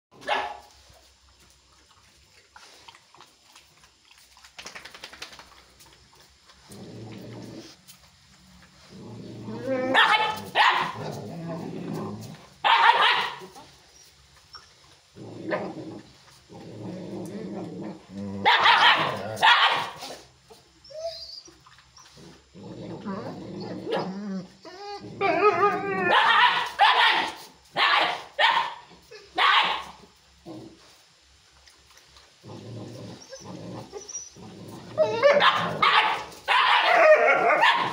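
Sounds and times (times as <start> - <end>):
dogs barking: 0.2 - 0.7, 9.9 - 11.1, 12.6 - 13.6, 18.4 - 20.1, 26.1 - 28.8, 29.4 - 30.0, 35.0 - 37.9
dog growling: 6.6 - 7.8, 8.8 - 12.6, 15.1 - 19.4, 22.1 - 26.2, 30.4 - 30.9, 32.4 - 36.2
dogs yelping: 9.5 - 11.1, 12.6 - 14.7, 18.4 - 20.1, 23.1 - 30.0, 33.1 - 37.9.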